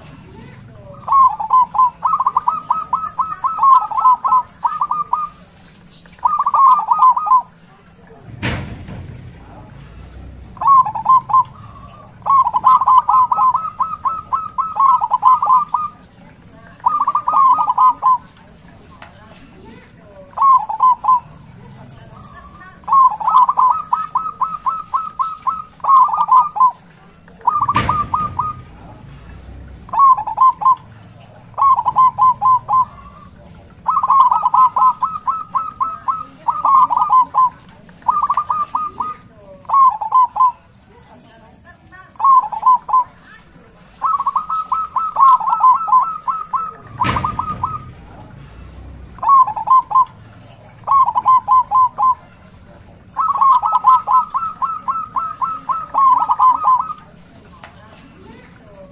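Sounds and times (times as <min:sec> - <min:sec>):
dove cooing song: 0:00.0 - 0:58.9
sharp knocks: 0:08.2 - 0:09.5, 0:27.7 - 0:28.8, 0:46.9 - 0:48.2.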